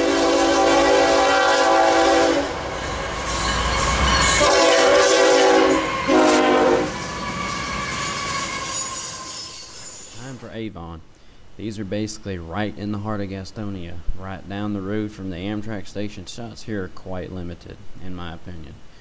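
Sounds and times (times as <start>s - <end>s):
locomotive air horn: 0.0s - 9.4s
train rumbling and clattering: 2.4s - 10.4s.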